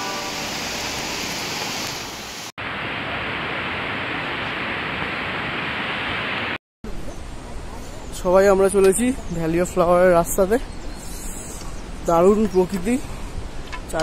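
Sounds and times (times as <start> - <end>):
stream rushing over boulders: 0.0 - 6.6.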